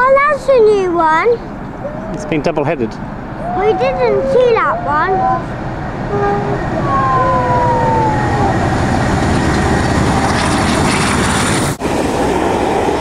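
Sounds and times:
train rumbling past: 0:01.0 - 0:13.0
high tone sliding down in pitch: 0:01.8 - 0:02.8, 0:03.4 - 0:10.2.

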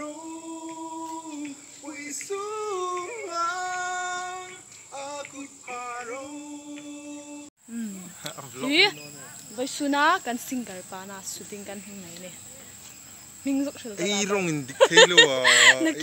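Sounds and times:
person singing slow melody: 0:00.0 - 0:08.1.

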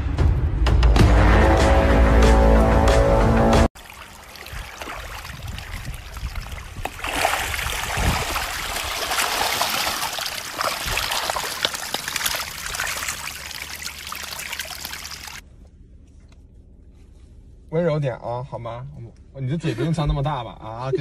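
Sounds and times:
shallow water trickling: 0:03.8 - 0:15.4.

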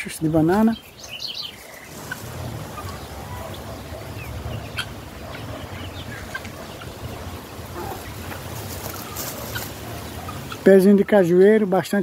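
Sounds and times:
steady low rumble: 0:00.8 - 0:10.5
fowl calling faintly: 0:01.6 - 0:10.8.

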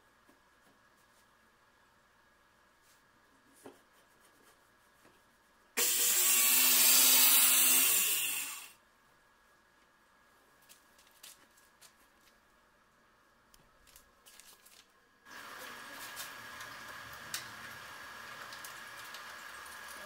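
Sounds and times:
circular saw running: 0:05.8 - 0:08.8
saw blade spinning down: 0:05.8 - 0:08.8.

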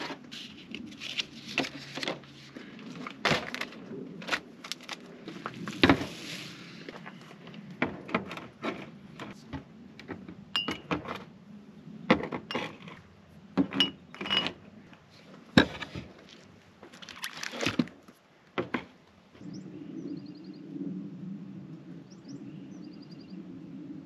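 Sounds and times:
glass jars clinking on a table: 0:13.6 - 0:14.6.

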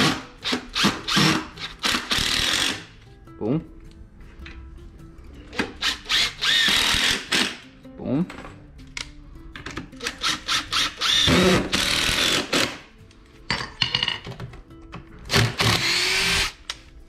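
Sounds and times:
power drill driving screws: 0:00.0 - 0:02.8, 0:05.8 - 0:07.6, 0:10.2 - 0:12.8, 0:15.3 - 0:16.6.

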